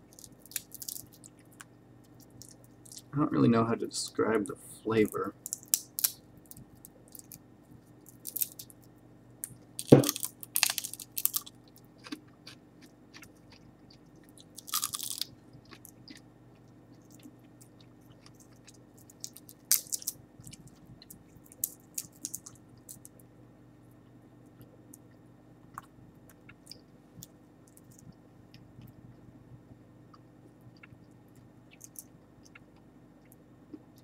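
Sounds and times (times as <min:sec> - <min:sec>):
dry insect shell cracking: 0:00.1 - 0:03.1, 0:05.4 - 0:07.4, 0:08.0 - 0:11.5, 0:14.6 - 0:15.9, 0:19.0 - 0:20.2, 0:21.0 - 0:23.1.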